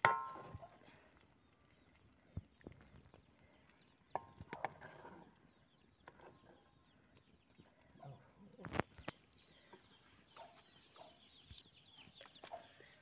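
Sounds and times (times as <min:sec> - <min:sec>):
wooden spatula knocking iron pan: 0:00.0 - 0:00.6.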